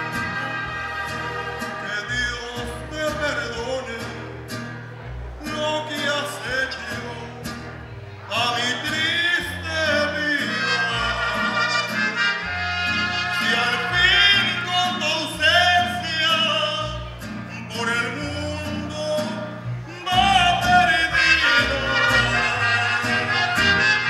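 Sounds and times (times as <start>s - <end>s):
man singing into microphone: 1.4s - 4.2s, 5.4s - 7.5s, 8.3s - 11.9s, 13.3s - 23.8s
instrumental accompaniment: 20.0s - 24.0s.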